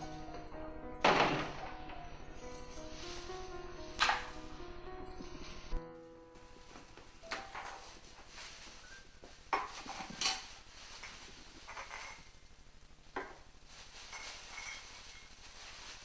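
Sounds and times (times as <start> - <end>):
plastic bag rustling: 6.4 - 16.0.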